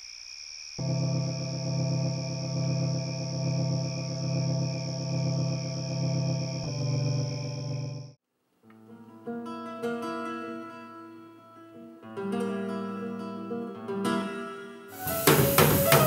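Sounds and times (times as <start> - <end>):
acoustic guitar plucked: 8.8 - 16.0
drum kit with cymbals: 15.0 - 16.0.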